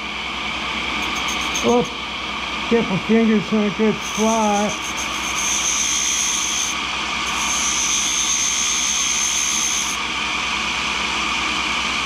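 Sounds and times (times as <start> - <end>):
grinder spindle whine: 0.0 - 12.0
high grinding hiss: 0.9 - 2.0, 2.7 - 10.0.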